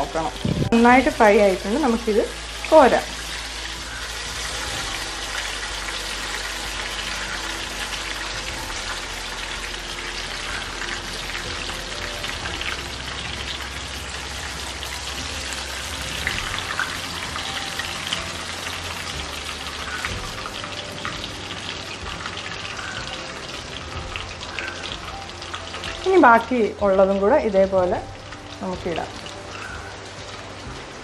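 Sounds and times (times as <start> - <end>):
oil sizzling and bubbling: 0.0 - 31.0.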